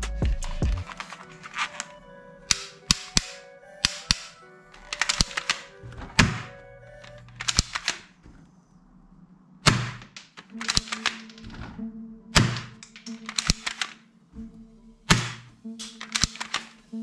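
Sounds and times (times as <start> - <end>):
background music with held tones: 0.0 - 8.3, 10.1 - 17.0
plastic clicks and knocks: 2.5 - 8.4, 9.7 - 11.8, 12.4 - 14.0, 15.1 - 16.8
loud thunks: 5.8 - 8.6, 9.6 - 11.8, 15.1 - 15.6.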